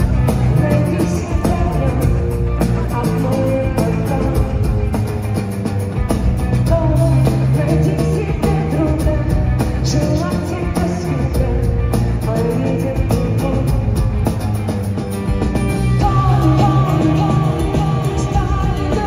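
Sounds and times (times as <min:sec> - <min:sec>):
live rock band playing: 0:00.0 - 0:19.0
woman singing: 0:00.3 - 0:04.7, 0:06.6 - 0:14.0, 0:16.0 - 0:19.0.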